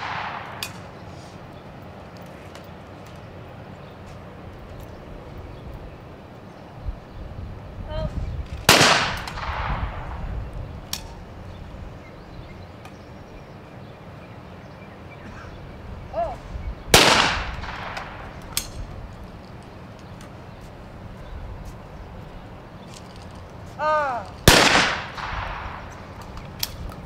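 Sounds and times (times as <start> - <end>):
shotgun shots echoing: 0.0 - 0.9, 8.7 - 10.2, 16.9 - 18.4, 24.4 - 26.1
person shouting: 23.8 - 24.4.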